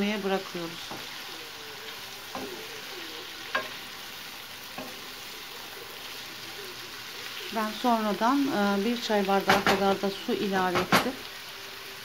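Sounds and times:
food sizzling in a frying pan: 0:00.0 - 0:12.0
spoon knocking against pan: 0:03.5 - 0:03.8, 0:09.4 - 0:10.0, 0:10.7 - 0:11.2.

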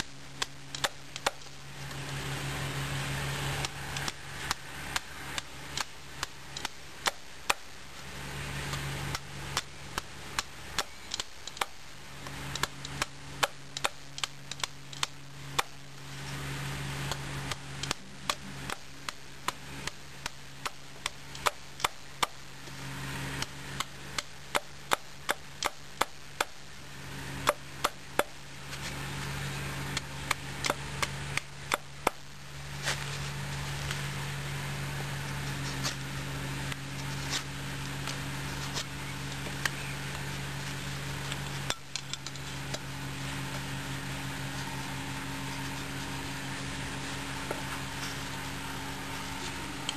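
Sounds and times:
knife chopping wood: 0:03.6 - 0:07.7, 0:09.1 - 0:11.8, 0:12.6 - 0:15.8, 0:17.1 - 0:22.4, 0:23.8 - 0:26.6, 0:27.4 - 0:28.4, 0:29.9 - 0:32.2.

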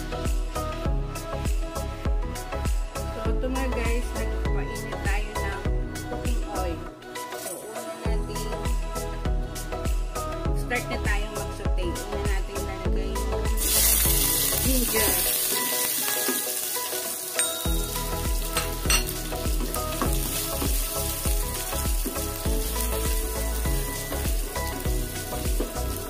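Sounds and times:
food sizzling in hot oil: 0:13.5 - 0:26.0.

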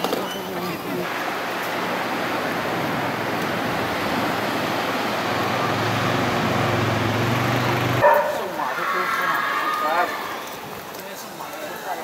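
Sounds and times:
traffic hiss: 0:00.2 - 0:12.0
vehicle engine hum: 0:01.0 - 0:08.6.

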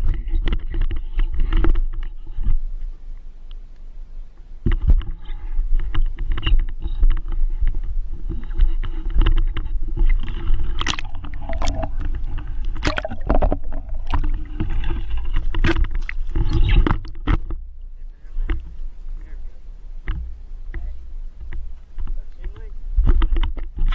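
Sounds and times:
wind and handling rumble: 0:00.0 - 0:23.9
sharp clicks and knocks: 0:05.8 - 0:17.6
pond water splashing: 0:10.6 - 0:17.2.

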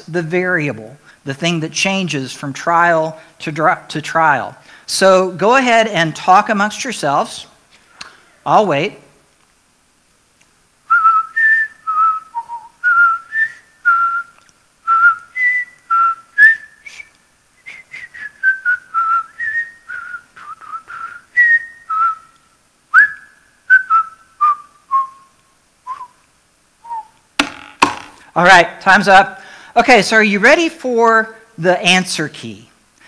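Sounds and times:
man whistling a tune: 0:10.9 - 0:26.2, 0:26.8 - 0:27.2.

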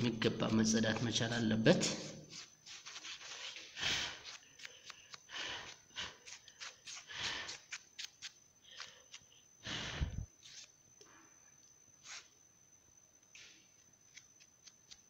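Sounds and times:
tissue rustling and wiping: 0:02.3 - 0:03.7.

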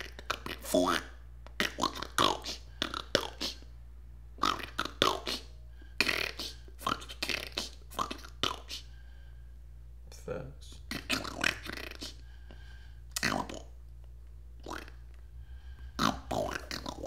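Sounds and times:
person vocalizing in broken bursts: 0:00.0 - 0:03.7, 0:04.4 - 0:08.9, 0:10.8 - 0:12.2, 0:13.1 - 0:13.8, 0:14.6 - 0:15.0, 0:16.0 - 0:17.0
low steady hum: 0:00.0 - 0:17.0.

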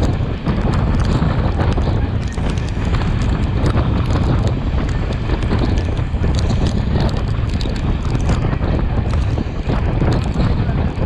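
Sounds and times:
train running on track: 0:00.0 - 0:11.0
wind buffeting microphone: 0:00.0 - 0:11.0.

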